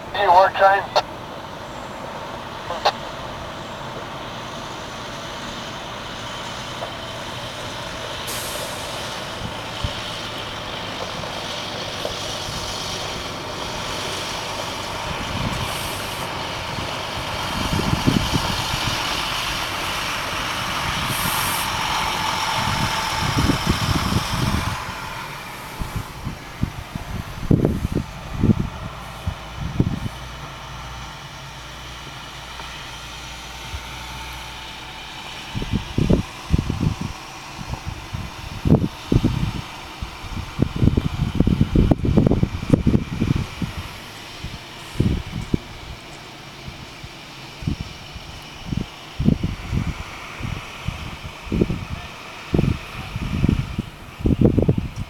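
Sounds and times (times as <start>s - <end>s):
truck engine running: 0.0s - 55.0s
low bumps: 8.8s - 46.2s.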